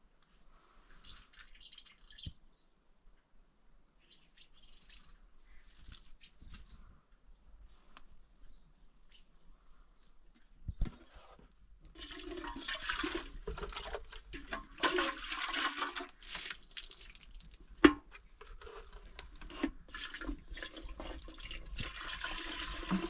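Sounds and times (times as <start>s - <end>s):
water running and splashing: 11.9s - 18.0s, 18.8s - 23.0s.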